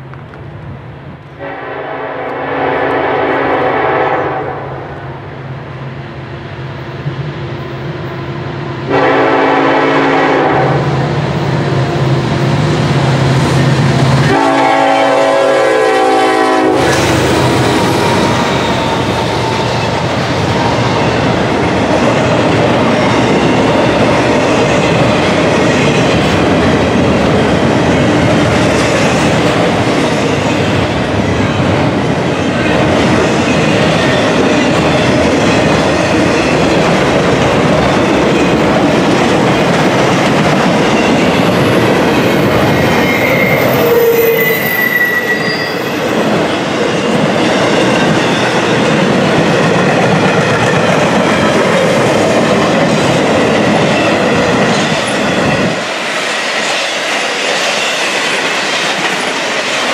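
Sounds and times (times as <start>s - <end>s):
train cars clickety-clack: 0.0s - 4.4s, 8.8s - 59.9s
diesel locomotive engine rumbling: 0.0s - 59.9s
locomotive horn blasts: 1.4s - 4.7s, 8.9s - 10.9s, 14.2s - 17.1s.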